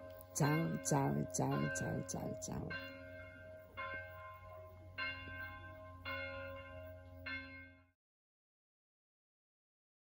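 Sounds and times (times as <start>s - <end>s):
church bell strikes: 0.0s - 8.0s.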